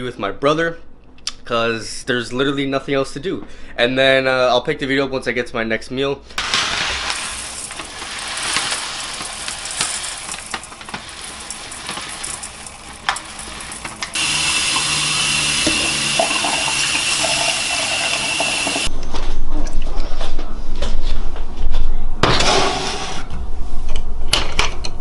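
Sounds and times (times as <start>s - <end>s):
dry rice pouring into saucepan: 6.4s - 18.9s
kitchen tap running: 6.4s - 18.9s.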